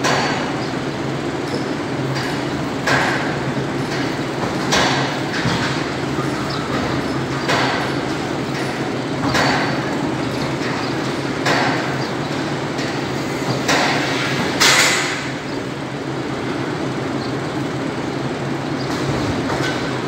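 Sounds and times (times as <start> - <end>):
sharp knocks: 2.1 - 15.3.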